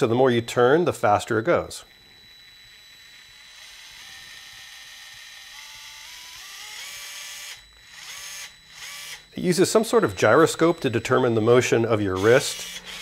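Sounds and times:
electric screwdriver whirring: 2.2 - 9.4, 12.1 - 13.0.

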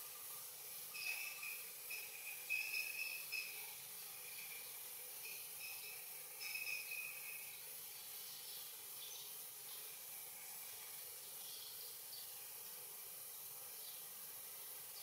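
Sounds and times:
steady hiss: 0.0 - 15.0
faint bird chirps: 0.9 - 3.6.

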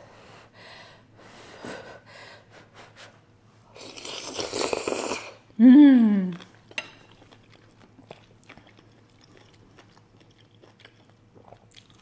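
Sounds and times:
person slurping noodles: 3.8 - 5.4.

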